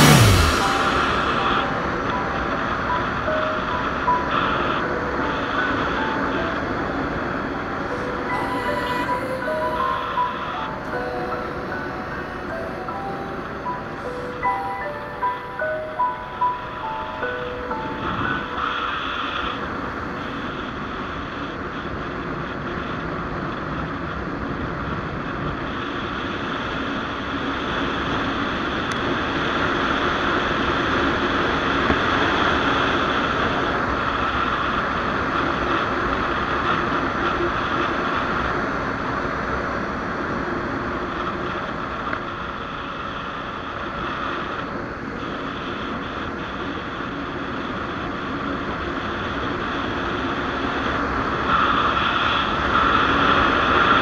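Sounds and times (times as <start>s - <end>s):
motorcycle engine running: 0.0s - 2.0s
wind rushing over microphone: 0.0s - 54.0s.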